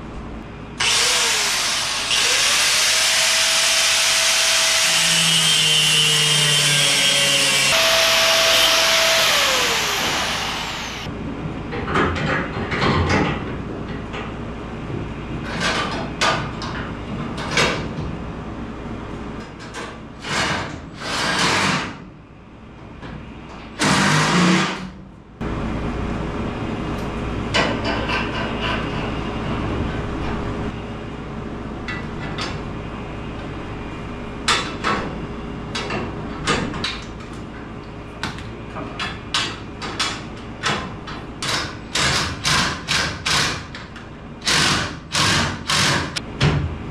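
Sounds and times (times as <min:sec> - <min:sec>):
angle grinder grinding steel: 0:00.8 - 0:11.1.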